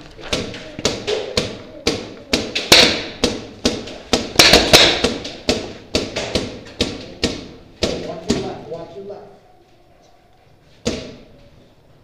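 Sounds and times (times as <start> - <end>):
paintball markers firing: 0.3 - 8.1.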